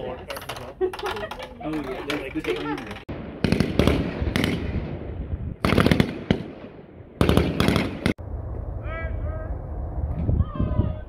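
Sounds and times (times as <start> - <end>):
echoing rifle shots: 3.1 - 8.2.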